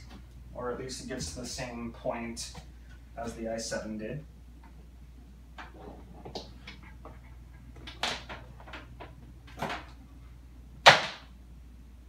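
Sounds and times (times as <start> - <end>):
low steady hum: 0.0 - 12.0
objects clunking and knocking: 5.6 - 10.0.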